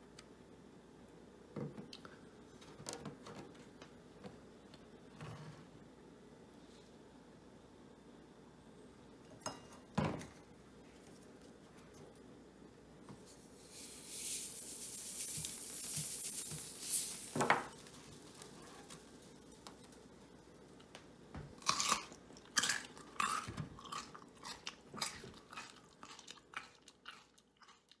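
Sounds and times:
steady hiss: 13.1 - 21.4
crunchy biting and chewing: 21.6 - 28.0.

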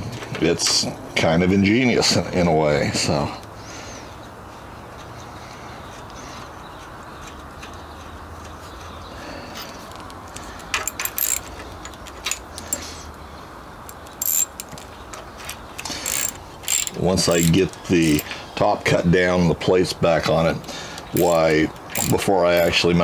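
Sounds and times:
metallic clicks and clinks: 10.6 - 12.9, 13.9 - 18.4, 21.2 - 22.8.

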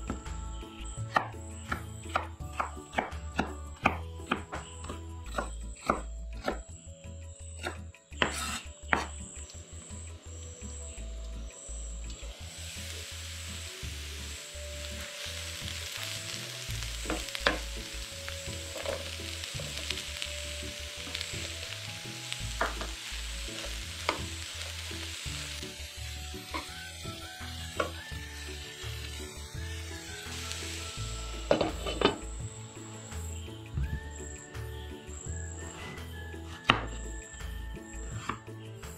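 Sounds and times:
vegetables sizzling in a pan: 9.4 - 35.7.

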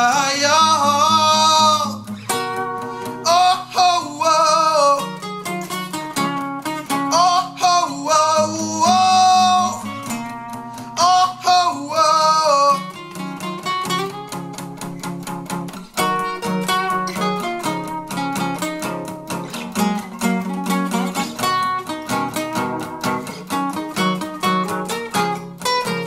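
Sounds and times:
man singing: 0.0 - 2.2, 2.9 - 5.3, 6.9 - 13.3
acoustic guitars playing: 0.0 - 26.0.

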